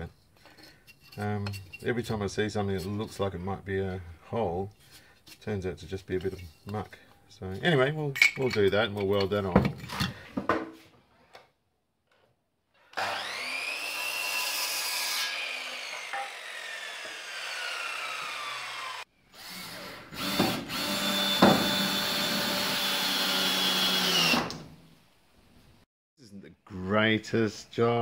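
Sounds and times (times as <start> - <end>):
power tool cutting metal: 13.0 - 24.6.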